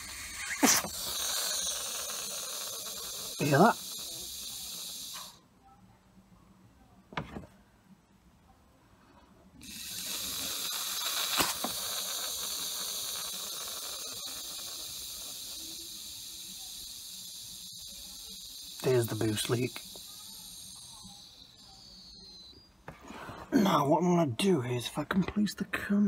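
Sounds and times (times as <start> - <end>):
air hissing from pipe joint: 9.6 - 22.2.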